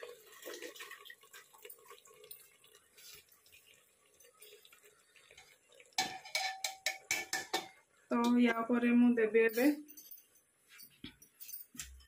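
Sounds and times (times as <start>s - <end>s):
strainer clinking against pot: 6.0s - 7.8s.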